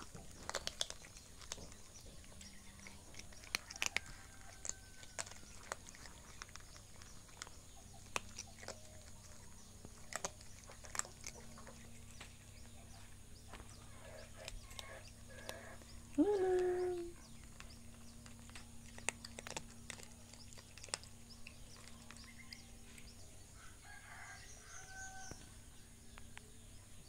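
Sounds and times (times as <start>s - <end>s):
cats crunching dry kibble: 0.0s - 26.6s.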